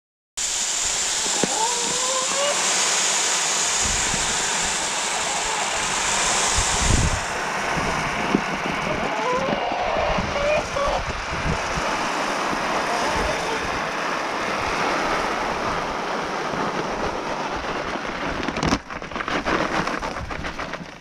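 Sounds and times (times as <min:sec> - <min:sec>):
pellets pouring into feeder: 0:00.4 - 0:11.0, 0:11.6 - 0:21.0
paper sack rustling: 0:16.5 - 0:21.0.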